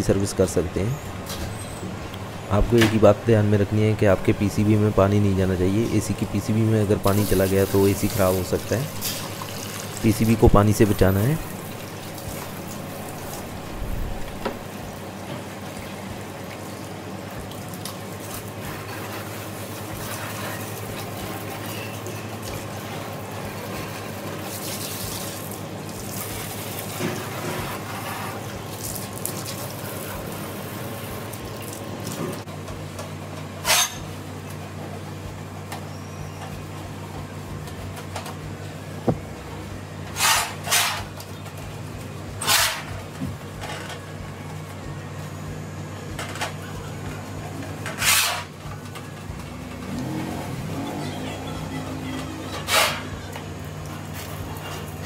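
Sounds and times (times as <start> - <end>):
steady low hum: 0.0 - 55.0
hose water spraying on metal: 7.0 - 14.6, 16.5 - 32.4.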